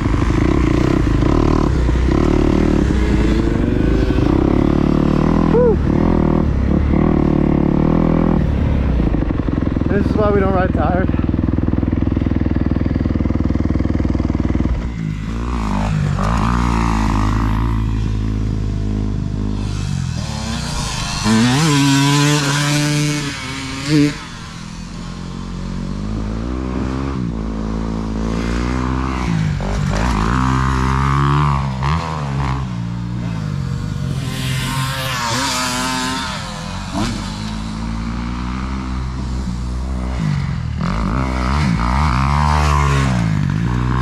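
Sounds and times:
dirt bike engines revving: 0:00.0 - 0:44.0
dirt bike passing close: 0:00.0 - 0:44.0.

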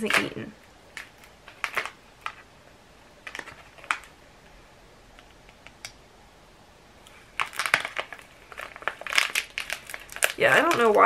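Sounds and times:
plastic pouch crinkling: 0:00.0 - 0:02.6, 0:03.2 - 0:04.2, 0:07.1 - 0:11.0.

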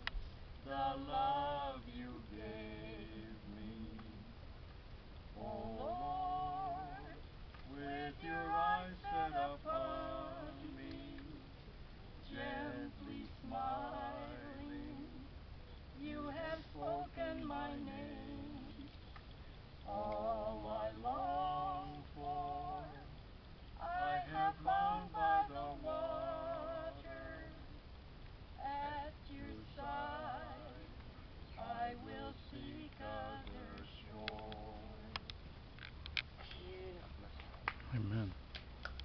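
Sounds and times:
woman singing worship song: 0:00.6 - 0:04.4, 0:05.3 - 0:35.4.

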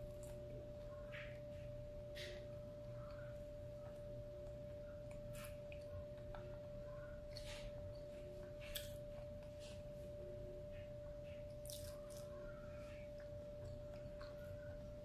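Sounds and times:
steady pure tone hum: 0:00.0 - 0:15.0
wet chewing mouth sounds: 0:11.3 - 0:12.5.

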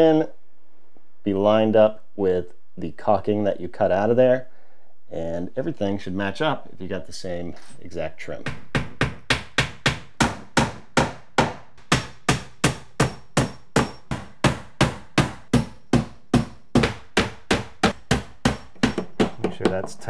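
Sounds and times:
hammer driving nails into wood: 0:08.5 - 0:20.0.

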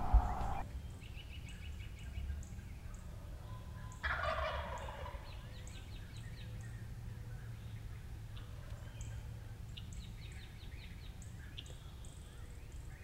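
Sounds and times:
turkey gobbling: 0:00.0 - 0:00.6, 0:04.0 - 0:05.3
small birds chirping: 0:00.0 - 0:04.1, 0:04.8 - 0:13.0.

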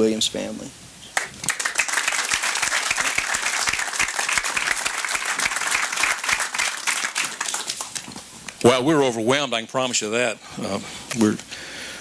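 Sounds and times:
crowd applauding: 0:01.2 - 0:08.2.

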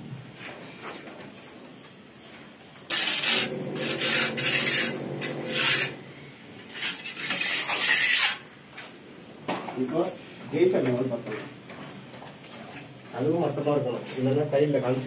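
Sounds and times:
trowel scraping mortar on wall: 0:02.9 - 0:06.1, 0:06.7 - 0:08.5.

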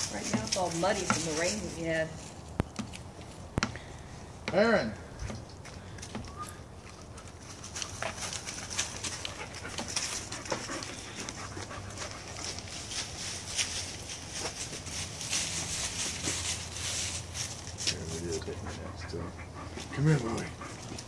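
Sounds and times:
scuffling: 0:00.0 - 0:03.4, 0:05.2 - 0:18.4
dogs panting: 0:05.5 - 0:21.0.

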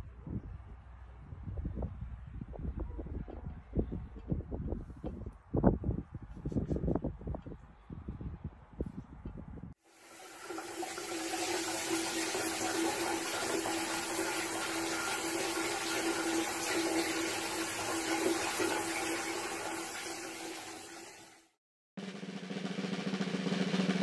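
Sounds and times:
shower water spraying on tiles: 0:09.9 - 0:21.4.

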